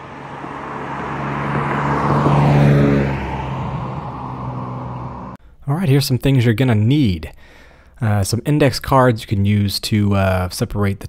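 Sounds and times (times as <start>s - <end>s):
car driving past: 0.0s - 5.4s.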